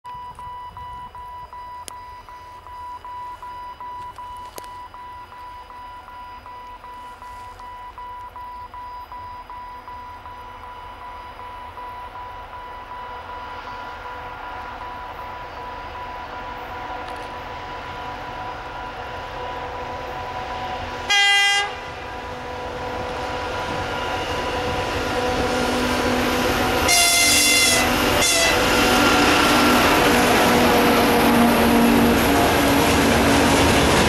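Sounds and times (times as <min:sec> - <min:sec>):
railway warning signal tone: 0:00.0 - 0:34.0
diesel train rumble: 0:08.9 - 0:34.0.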